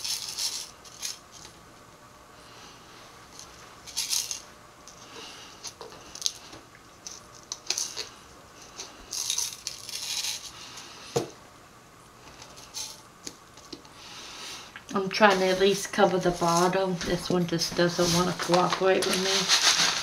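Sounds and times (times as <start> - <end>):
rustling: 14.3 - 20.0.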